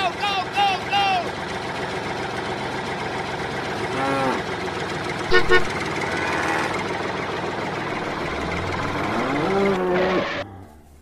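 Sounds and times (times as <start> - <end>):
small engine running: 0.0 - 10.5
horn toots: 5.3 - 6.8, 9.1 - 10.4.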